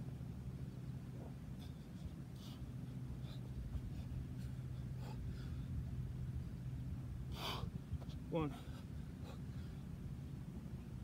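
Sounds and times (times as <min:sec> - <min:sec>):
man breathing hard: 0:01.5 - 0:06.0, 0:07.3 - 0:07.8, 0:08.5 - 0:10.0.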